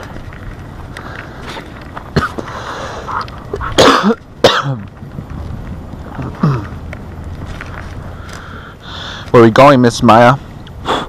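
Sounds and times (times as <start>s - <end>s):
man coughing: 3.8s - 4.8s.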